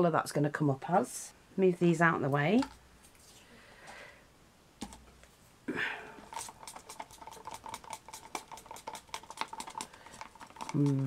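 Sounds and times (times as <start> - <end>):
stick clicking against plastic cup: 6.2 - 11.0.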